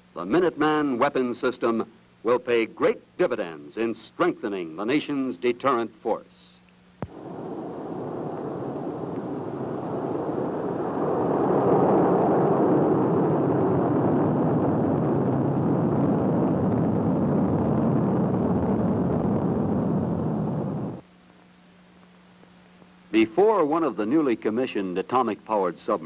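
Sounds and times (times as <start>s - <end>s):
rocket motor rumble: 7.0s - 21.0s.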